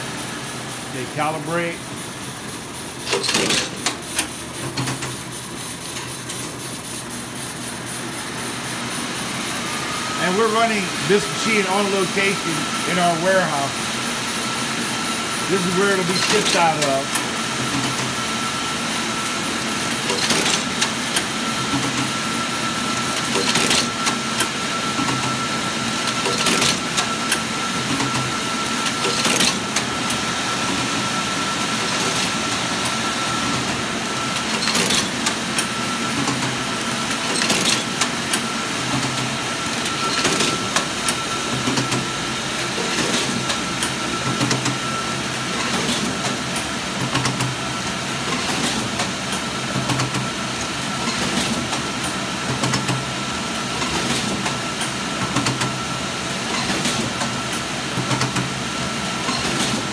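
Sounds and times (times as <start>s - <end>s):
machine whirring with high tone: 0.0s - 59.9s
machine clacking: 3.0s - 5.2s, 15.5s - 18.0s, 19.9s - 22.1s, 26.1s - 27.1s, 34.4s - 36.5s, 37.2s - 38.4s, 39.0s - 42.1s.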